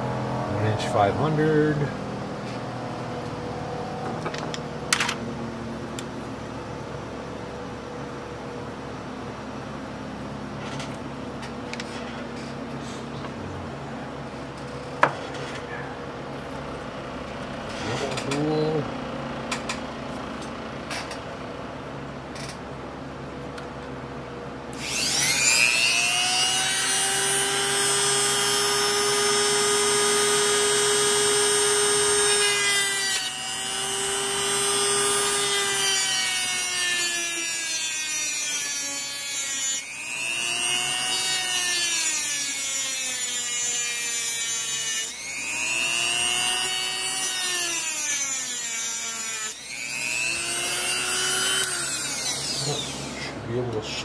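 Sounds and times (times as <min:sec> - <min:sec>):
grinding tool whining on steel: 0:24.8 - 0:53.4.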